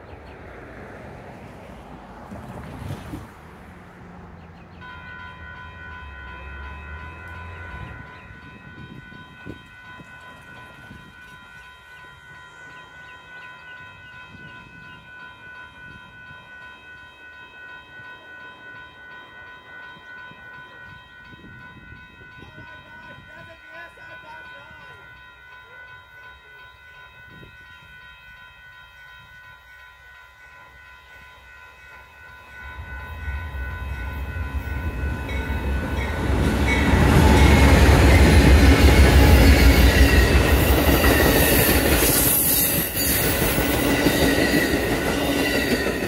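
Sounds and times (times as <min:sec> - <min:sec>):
railroad crossing bell ringing: 0:04.3 - 0:46.0.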